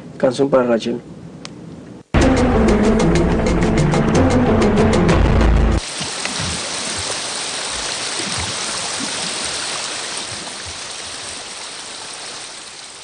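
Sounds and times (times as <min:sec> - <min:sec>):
rushing water: 0:05.8 - 0:13.0.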